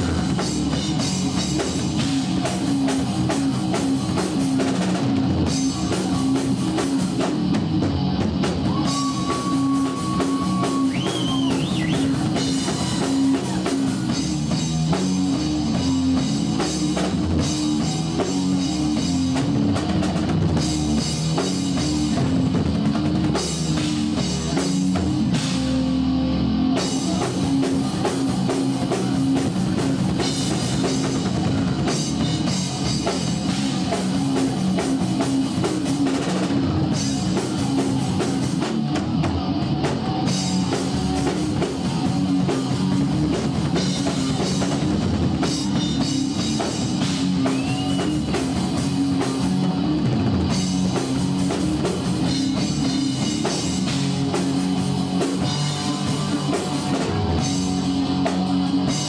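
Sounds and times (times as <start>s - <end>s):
heavy rock band playing: 0.0s - 59.0s.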